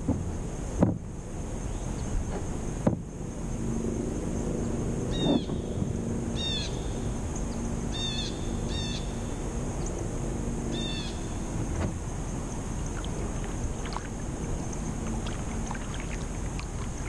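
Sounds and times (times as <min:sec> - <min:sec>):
low steady hum: 0:00.0 - 0:17.0
bird calling: 0:05.1 - 0:05.8, 0:06.4 - 0:09.3, 0:10.7 - 0:11.5.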